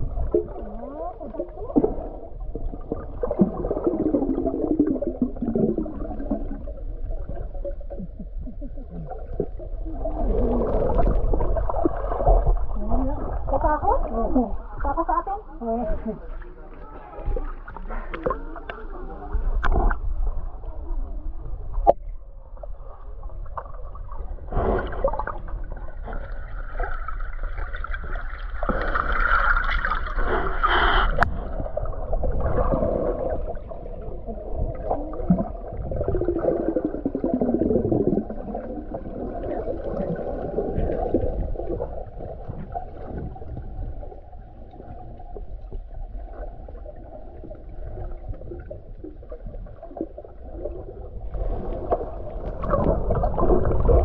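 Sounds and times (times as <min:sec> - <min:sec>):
water sloshing and gurgling: 0:00.0 - 0:54.0.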